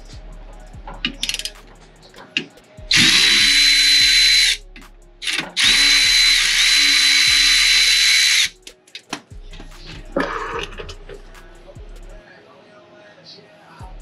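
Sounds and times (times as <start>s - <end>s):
impact wrench whining: 2.9s - 4.6s, 5.2s - 8.6s.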